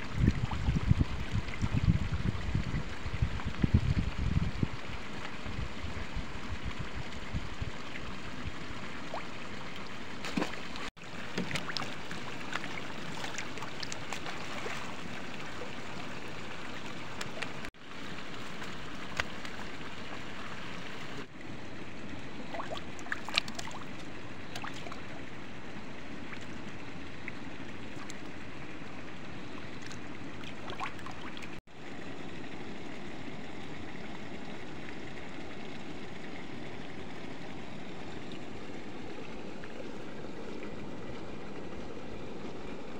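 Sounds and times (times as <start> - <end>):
water pouring from a pipe: 0.0 - 21.4, 25.8 - 42.9
fish splashing and flopping: 10.2 - 15.9, 22.4 - 25.2.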